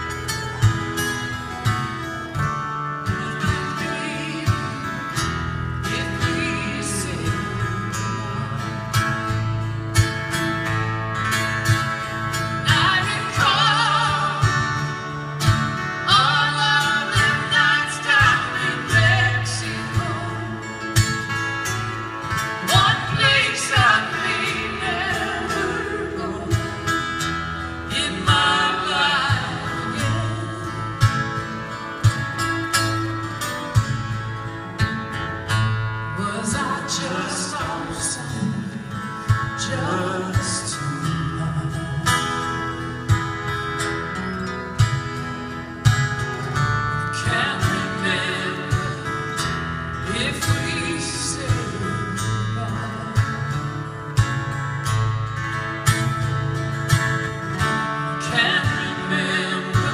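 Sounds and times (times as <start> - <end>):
acoustic guitars strumming: 0.0 - 59.9
woman singing: 3.0 - 9.1, 12.6 - 14.9, 16.0 - 21.0, 22.6 - 31.4, 36.1 - 42.3, 47.1 - 49.2, 50.0 - 53.8, 58.2 - 59.9.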